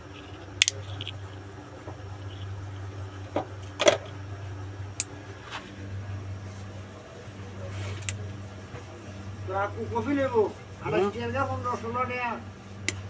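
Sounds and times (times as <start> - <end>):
steady low hum: 0.0 - 13.0
cinnamon stick snapping: 0.3 - 1.4.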